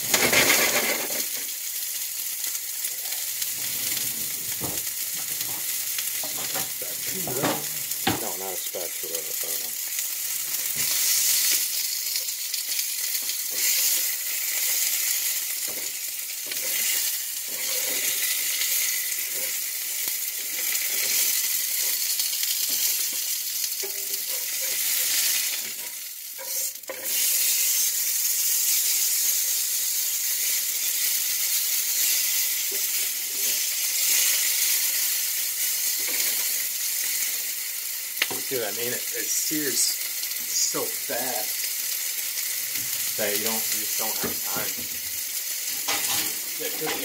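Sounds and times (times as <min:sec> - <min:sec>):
steak sizzling in frying pan: 0:00.0 - 0:47.0.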